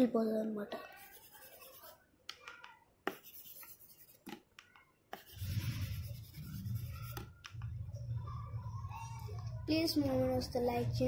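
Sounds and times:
stylus scratching on tablet screen: 0.8s - 7.8s.

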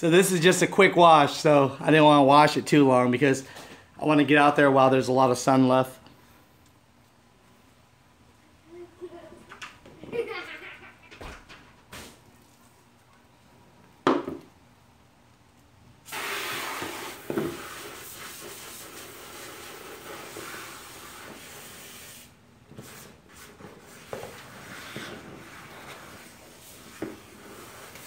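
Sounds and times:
water hissing from hose: 16.1s - 23.0s, 24.0s - 28.0s.

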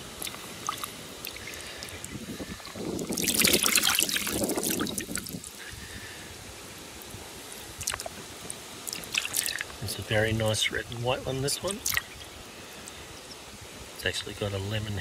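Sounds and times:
water drips: 0.1s - 5.6s, 7.0s - 9.9s, 11.6s - 13.4s
water splashing in a bucket: 0.1s - 5.6s, 7.8s - 8.2s, 8.8s - 9.9s, 11.6s - 12.2s.

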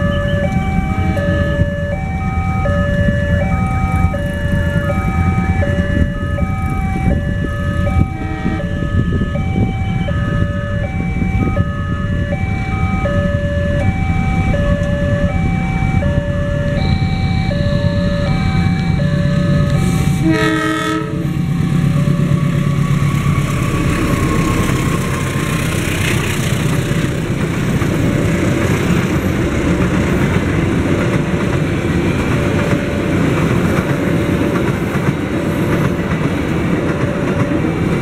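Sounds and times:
level crossing two-tone alarm: 0.0s - 21.2s, 21.8s - 23.6s
approaching diesel train: 0.0s - 38.0s.

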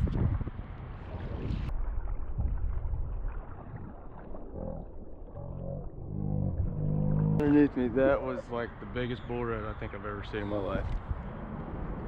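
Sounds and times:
wind rumbling on microphone: 0.0s - 12.0s
water lapping against kayak: 1.0s - 8.2s.

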